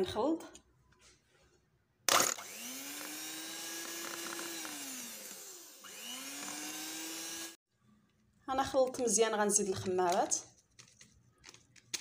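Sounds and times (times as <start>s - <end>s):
hand mixer motor whining: 2.1s - 7.6s.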